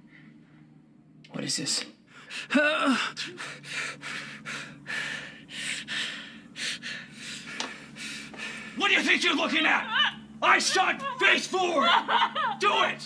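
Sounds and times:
man panting heavily: 2.1s - 8.8s.

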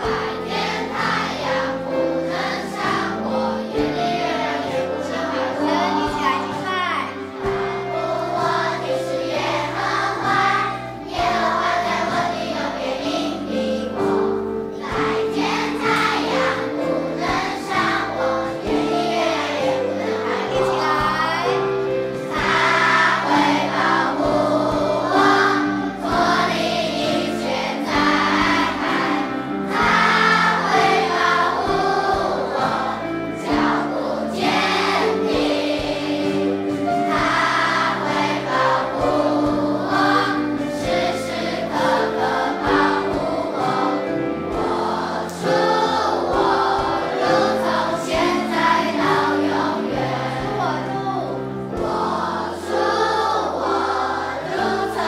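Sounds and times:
group of voices singing: 0.0s - 55.0s
instrumental backing music: 0.0s - 55.0s.

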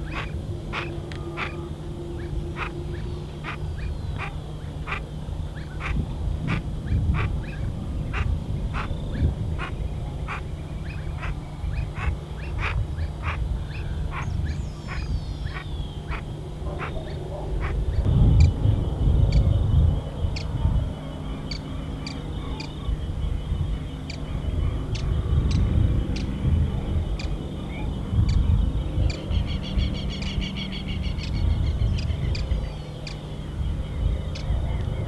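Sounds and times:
duck calling: 0.0s - 1.6s, 4.2s - 5.0s
low rumble: 0.0s - 35.0s.

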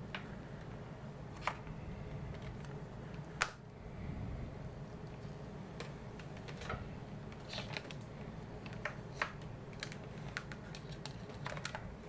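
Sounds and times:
steady low hum: 0.0s - 12.0s
plastic clicks and rustles: 5.8s - 12.0s.

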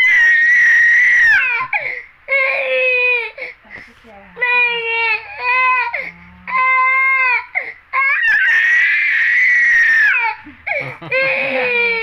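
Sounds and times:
infant crying: 0.0s - 3.6s, 4.4s - 12.0s.

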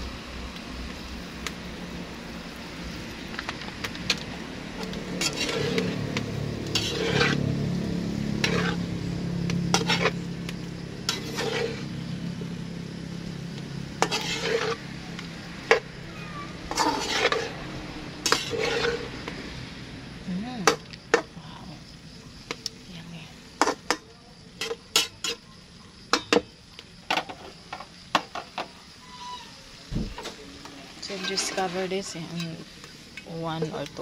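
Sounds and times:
food sizzling in wok: 0.0s - 34.0s
spatula scraping wok: 3.1s - 12.6s, 13.2s - 19.7s, 23.4s - 25.5s, 29.0s - 34.0s.

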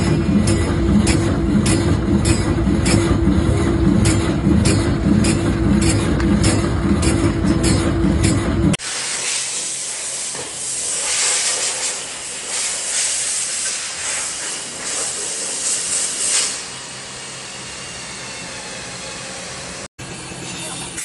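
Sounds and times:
loud low machine drone: 0.0s - 8.8s, 14.6s - 21.0s
packaging machine air hiss: 8.8s - 16.8s.

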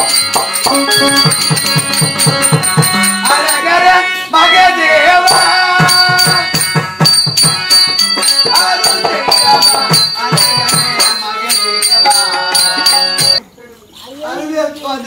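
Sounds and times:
barrel drum steady beat: 0.0s - 3.7s, 5.3s - 13.4s
person singing: 0.0s - 6.8s, 7.8s - 13.4s
harmonium: 0.0s - 13.4s.

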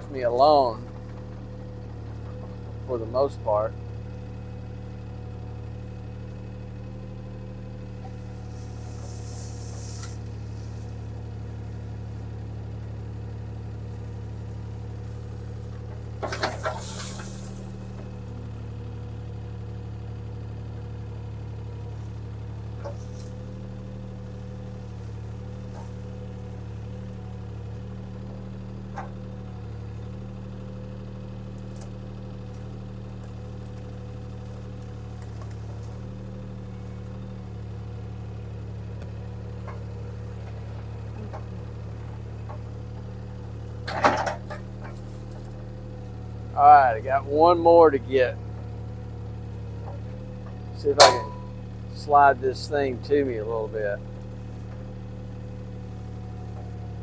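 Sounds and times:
diesel engine running: 0.0s - 57.0s
brief hiss: 8.5s - 10.2s.

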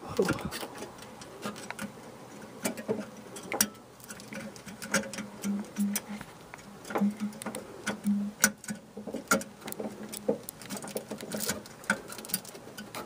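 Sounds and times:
bulb and clips clicking and rattling: 2.6s - 13.0s.

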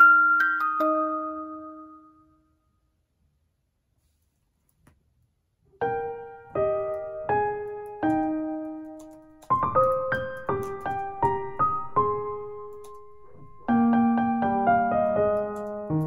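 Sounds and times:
piano notes and chords: 0.0s - 2.4s, 5.7s - 16.0s.

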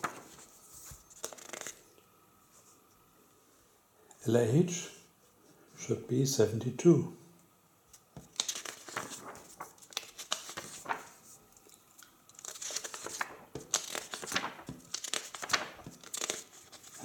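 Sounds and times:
book pages rustling: 0.0s - 1.8s, 8.2s - 17.0s.

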